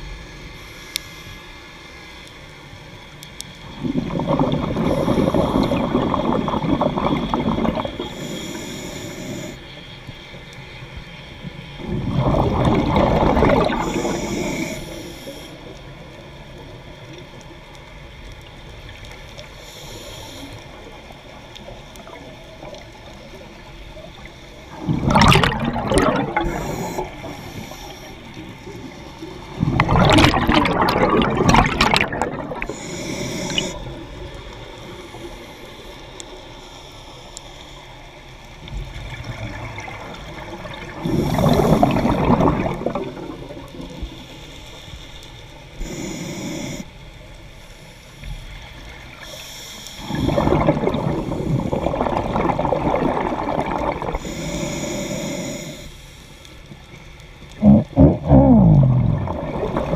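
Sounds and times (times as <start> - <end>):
regulator inhale hiss: 0.2 - 3.6, 4.7 - 6.2, 7.8 - 10.3, 13.5 - 16.4, 19.3 - 24.8, 26.3 - 29.6, 32.4 - 38.6, 40.9 - 42.5, 43.8 - 50.6, 54.0 - 58.0
exhaled bubbles rushing: 3.6 - 8.3, 11.8 - 14.7, 24.0 - 34.3, 38.7 - 44.1, 50.0 - 54.2, 57.6 - 59.9.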